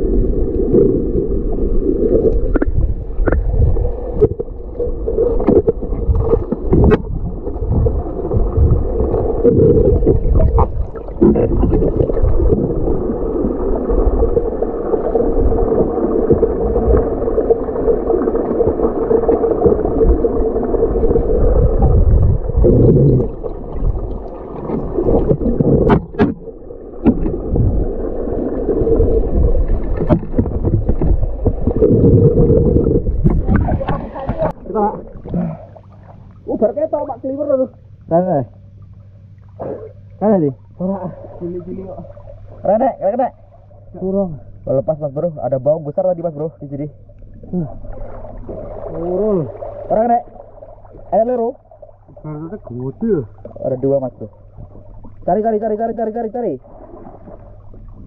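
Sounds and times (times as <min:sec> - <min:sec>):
muffled underwater rumble: 0:00.0 - 0:58.0
steady hum: 0:00.0 - 0:58.0.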